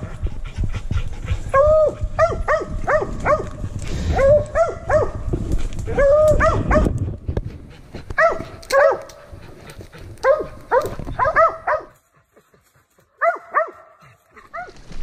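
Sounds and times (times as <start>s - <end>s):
rustling through brush: 0.0s - 15.0s
dogs barking: 1.5s - 5.3s, 6.0s - 7.0s, 8.1s - 14.8s.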